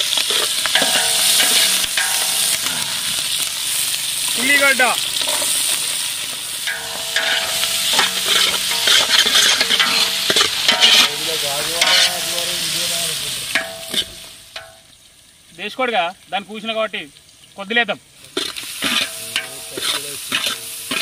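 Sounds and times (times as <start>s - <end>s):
onions sizzling in hot oil: 0.0s - 21.0s
metal ladle scraping pot: 0.2s - 3.7s, 6.6s - 12.8s, 13.5s - 14.8s, 18.4s - 21.0s.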